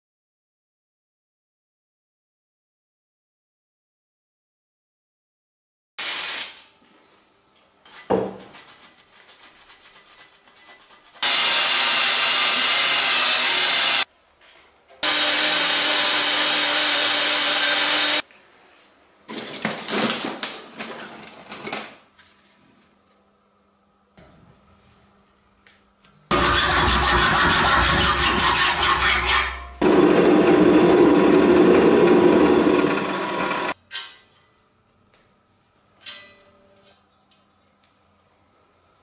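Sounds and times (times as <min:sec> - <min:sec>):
power tool running: 0:11.2 - 0:14.1, 0:15.0 - 0:18.2, 0:26.3 - 0:33.8
clatter of metal bicycle parts: 0:36.0 - 0:37.0.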